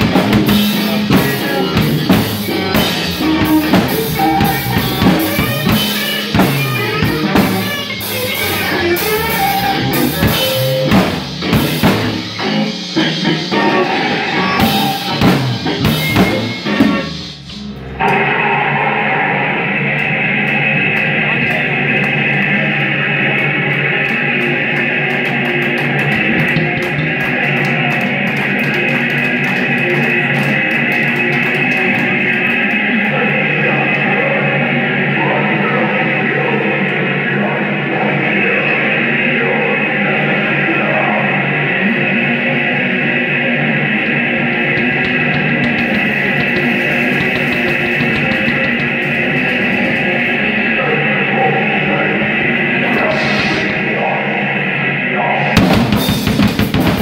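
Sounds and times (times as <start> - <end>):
live rock band playing: 0.0 - 20.4, 23.3 - 32.6, 44.5 - 50.7, 52.9 - 54.1, 55.4 - 57.0
electric guitar wall of sound: 0.0 - 57.0
heavy drum hits: 10.0 - 12.4, 14.6 - 17.4, 44.8 - 50.0, 55.5 - 57.0.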